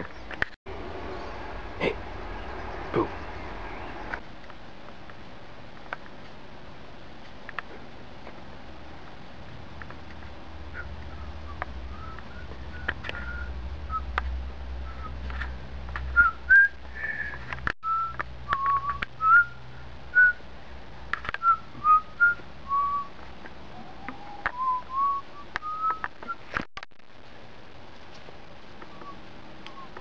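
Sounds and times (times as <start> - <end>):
short whistled notes: 10.8 - 14.1.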